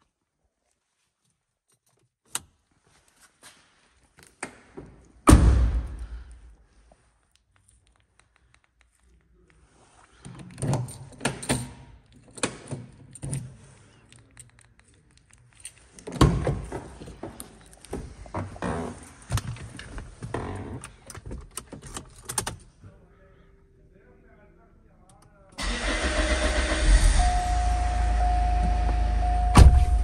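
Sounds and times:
car key rattling in door lock: 21.0 - 22.7.

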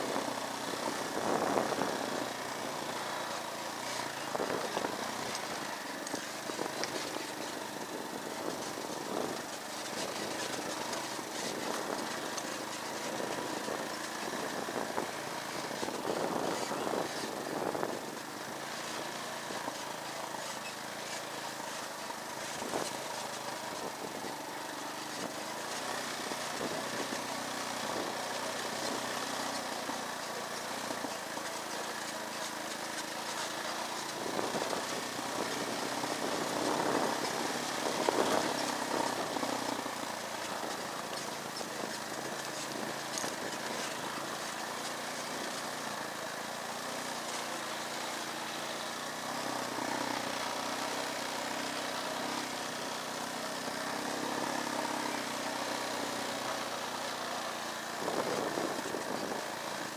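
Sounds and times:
small motorcycle engine running: 0.0 - 59.9.

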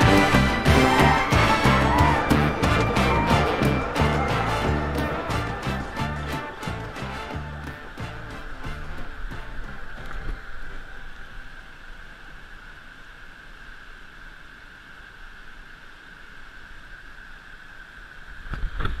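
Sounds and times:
water rushing over rocks: 0.0 - 12.8.

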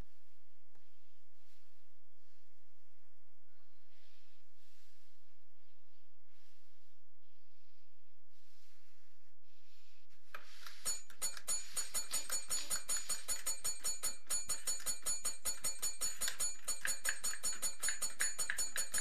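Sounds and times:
tap bell dinging: 10.8 - 19.0.

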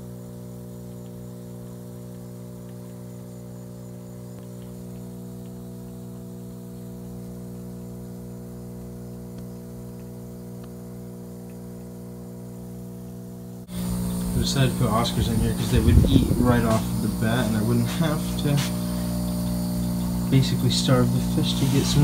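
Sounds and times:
low electric hum: 0.0 - 22.0
faint ticks: 0.8 - 3.2, 4.3 - 6.1.

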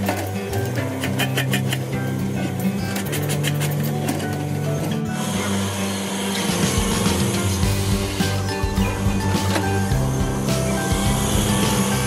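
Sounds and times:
music with steady beat and bass: 6.4 - 12.0.

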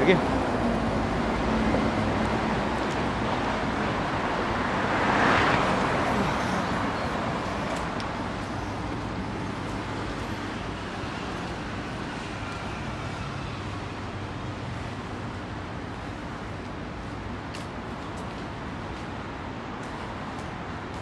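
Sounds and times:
city road traffic: 0.0 - 21.0
vehicle passing close: 0.6 - 10.7.

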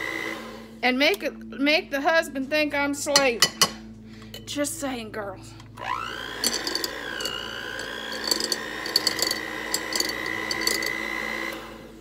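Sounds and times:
beaters knocking bowl: 6.4 - 11.0.

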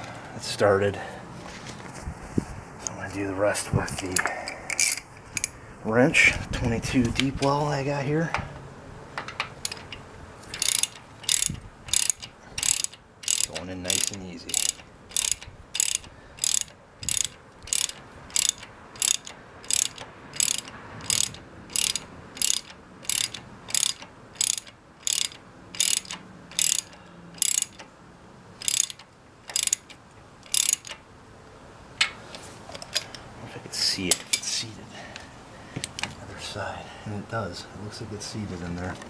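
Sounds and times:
socket wrench ratcheting: 4.7 - 5.6, 9.3 - 27.9, 28.6 - 31.0.

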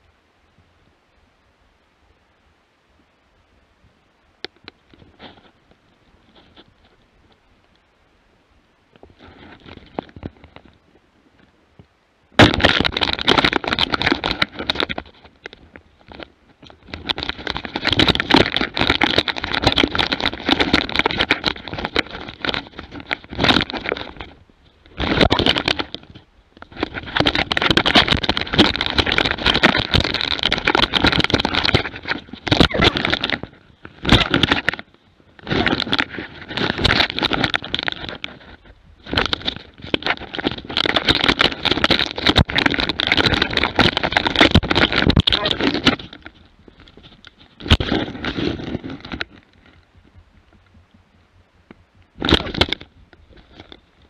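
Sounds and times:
camera brushing through undergrowth: 9.0 - 11.6, 12.4 - 51.0.

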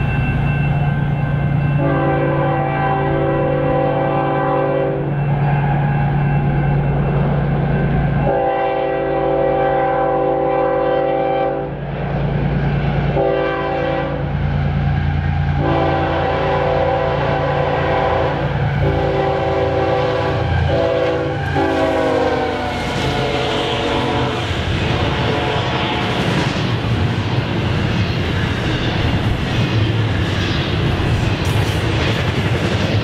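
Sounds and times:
low rumble of locomotive engines: 0.0 - 33.0
locomotive air horn blasts: 1.8 - 5.1, 8.2 - 11.8, 13.2 - 14.3, 15.6 - 26.3.

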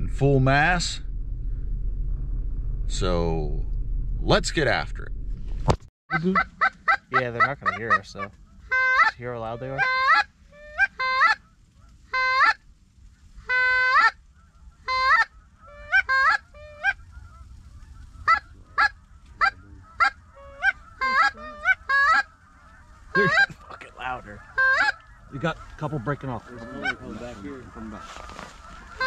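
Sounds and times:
geese honking: 6.1 - 29.0
flock chatter: 6.4 - 29.0.

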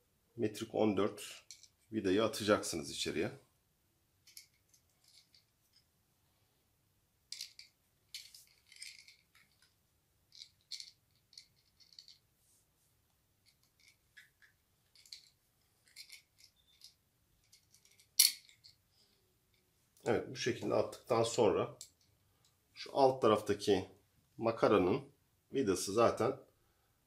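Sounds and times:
small metal parts clinking: 1.4 - 1.9, 4.2 - 5.9, 7.3 - 12.3, 13.4 - 18.8.

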